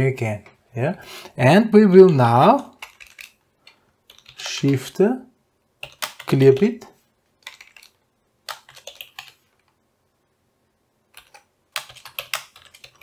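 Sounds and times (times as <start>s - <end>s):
typing on computer keyboard: 2.0s - 5.0s, 5.8s - 6.8s, 7.4s - 9.8s, 11.1s - 13.0s.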